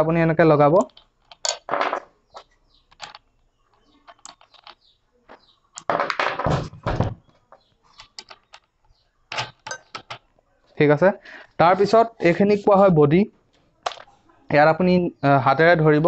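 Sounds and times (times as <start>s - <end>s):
metal nuts clicking and clinking: 0.7s - 6.4s, 7.9s - 10.3s.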